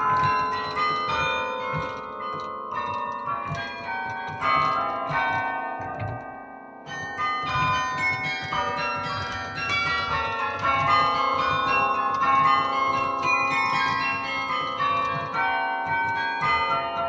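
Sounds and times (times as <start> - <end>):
carillon bells melody: 0.0 - 17.0.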